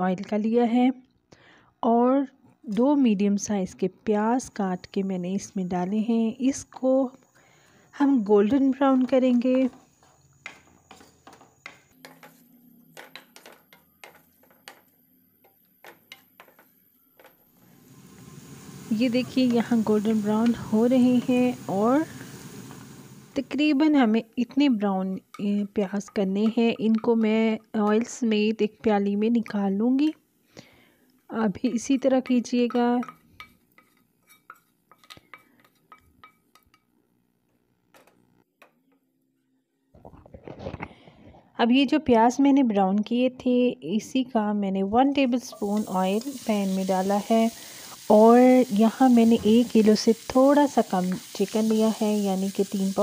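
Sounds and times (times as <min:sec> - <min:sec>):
onions frying in oil: 0:13.0 - 0:28.2, 0:45.5 - 0:53.0
metal spoon clinking against pan: 0:31.7 - 0:36.9.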